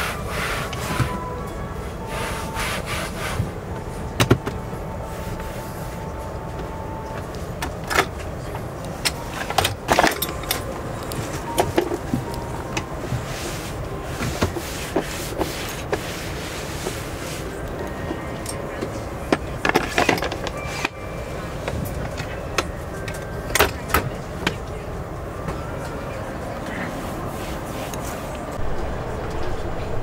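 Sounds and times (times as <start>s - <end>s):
aircraft cabin hum: 0.0s - 30.0s.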